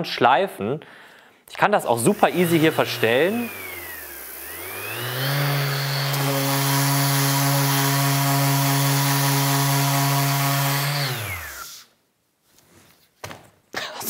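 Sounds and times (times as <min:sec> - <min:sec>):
electric orbital sander running: 0:01.9 - 0:11.8.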